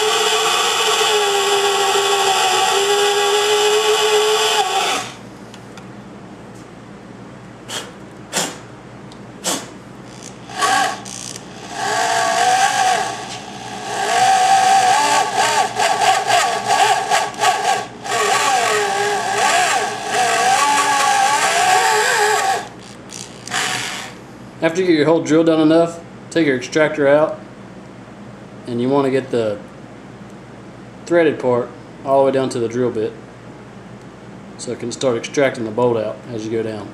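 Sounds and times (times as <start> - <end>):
electric drill whining: 0.0 - 5.2, 10.1 - 24.2.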